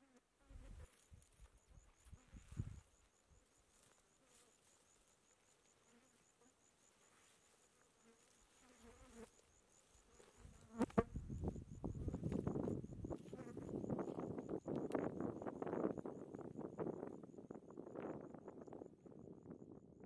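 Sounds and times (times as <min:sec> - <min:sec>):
flies buzzing: 0:03.7 - 0:14.2.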